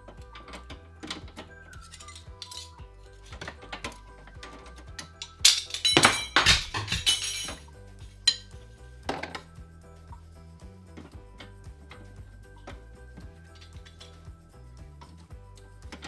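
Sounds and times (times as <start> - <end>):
background music: 0.0 - 16.0
dishes clattering in dishwasher racks: 5.0 - 7.7.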